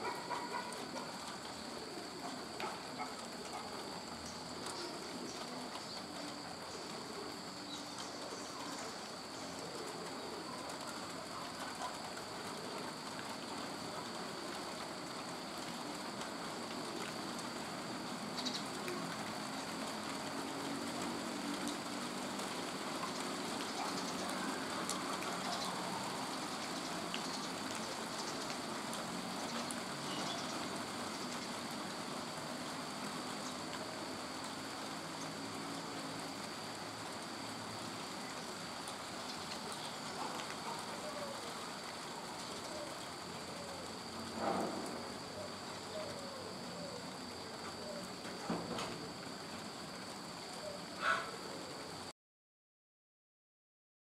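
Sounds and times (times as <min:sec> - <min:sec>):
steady background hiss: 0:00.0 - 0:52.1
faint bird calls: 0:50.6 - 0:51.9.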